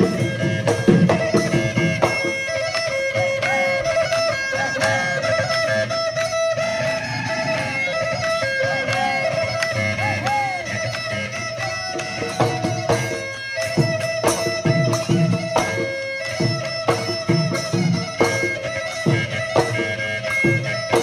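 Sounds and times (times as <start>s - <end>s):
drum beat: 0.0s - 5.0s, 11.9s - 21.0s
sliding folk melody: 0.0s - 21.0s.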